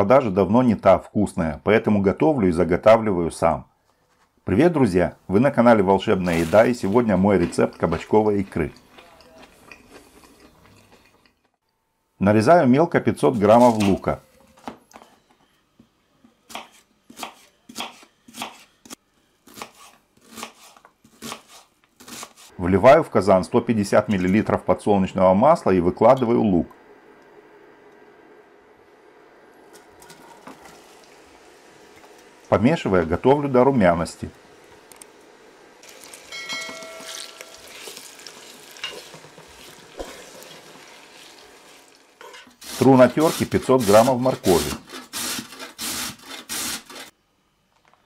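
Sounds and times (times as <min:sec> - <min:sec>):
wooden spatula scraping pot: 0:06.1 - 0:08.7, 0:36.6 - 0:47.1
knife slicing onion on cutting board: 0:16.5 - 0:22.5, 0:42.6 - 0:47.1
onion sizzling in oil: 0:30.0 - 0:43.6
brief ringing tone: 0:36.3 - 0:37.9.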